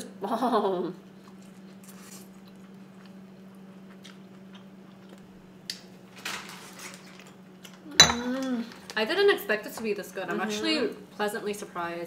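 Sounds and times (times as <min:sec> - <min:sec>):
people chewing: 0:01.2 - 0:03.2, 0:03.8 - 0:05.3
low steady hum: 0:08.0 - 0:08.5.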